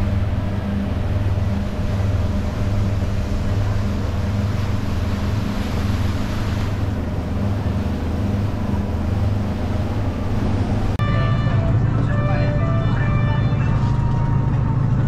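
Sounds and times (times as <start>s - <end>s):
wind and water hiss: 0.0s - 11.0s
boat engine hum: 0.0s - 15.0s.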